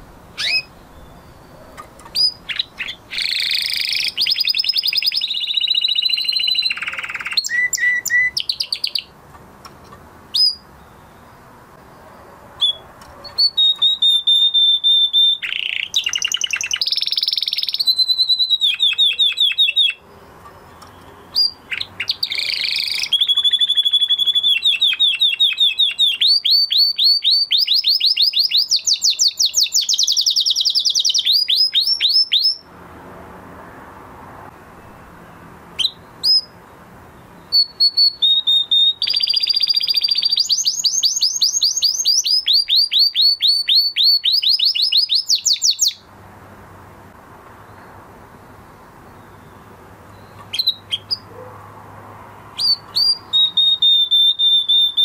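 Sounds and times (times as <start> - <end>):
canary singing: 0.0 - 32.7, 34.7 - 46.1, 47.6 - 51.6, 52.4 - 55.0.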